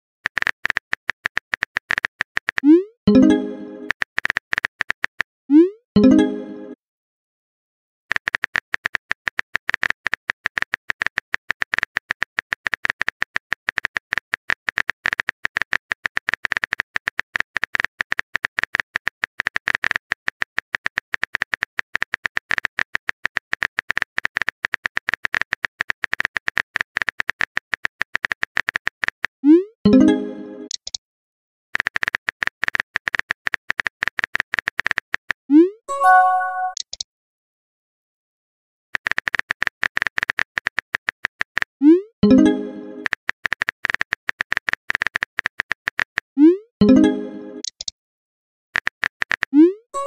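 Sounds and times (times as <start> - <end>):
rapid keyboard typing clicks: 0.2 - 2.8, 3.8 - 5.2, 8.1 - 29.3, 31.8 - 35.4, 39.0 - 41.7, 42.3 - 46.3, 48.8 - 49.6.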